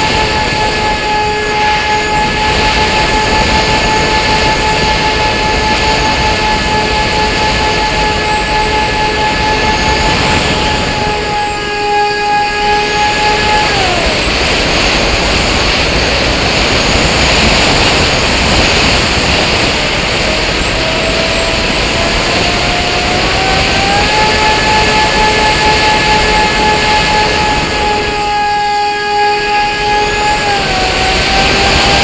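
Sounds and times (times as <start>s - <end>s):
model airplane motor whine: 0.0s - 32.0s
rush of air: 12.4s - 28.3s.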